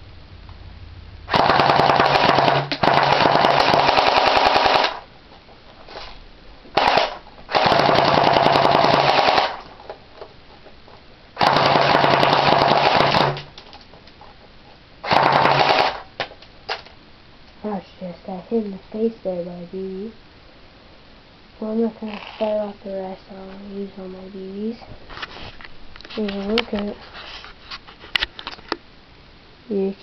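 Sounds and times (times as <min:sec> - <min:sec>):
low hum: 0:00.0 - 0:27.2
airsoft gun automatic bursts: 0:01.3 - 0:05.1, 0:06.8 - 0:09.7, 0:11.4 - 0:13.5, 0:15.0 - 0:16.1.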